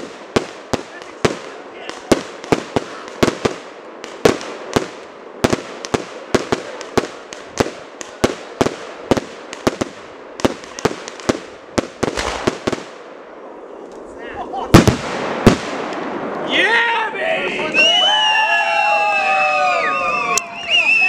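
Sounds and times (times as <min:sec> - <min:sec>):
fireworks bangs: 0:00.0 - 0:13.5, 0:14.7 - 0:16.8.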